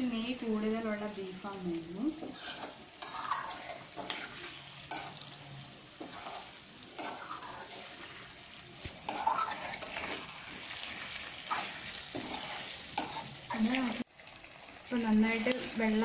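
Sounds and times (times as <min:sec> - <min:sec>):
frying sizzle: 0:00.0 - 0:16.0
metal spoon scraping pan: 0:02.2 - 0:05.2, 0:06.0 - 0:08.3, 0:09.0 - 0:14.0.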